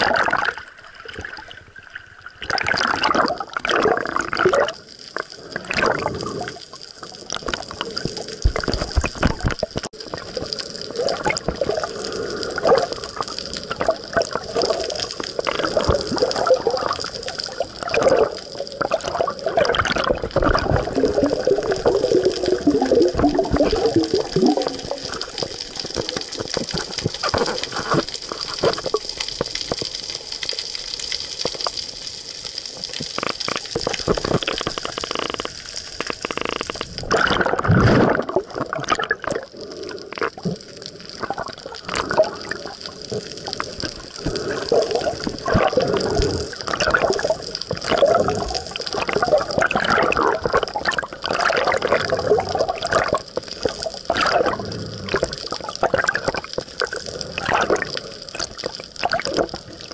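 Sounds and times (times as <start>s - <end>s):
muffled underwater sloshing: 0.0s - 30.1s.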